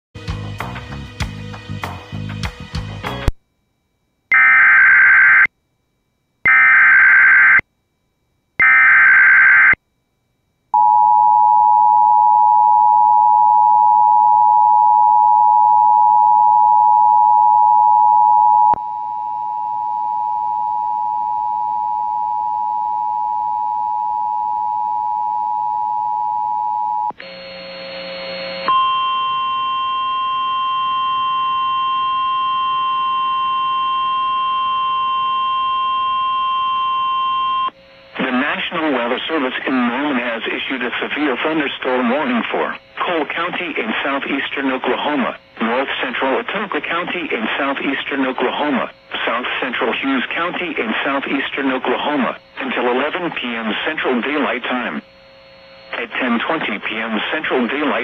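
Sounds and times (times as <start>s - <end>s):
screechy data tones: 4.3s - 5.5s, 6.5s - 7.6s, 8.6s - 9.8s.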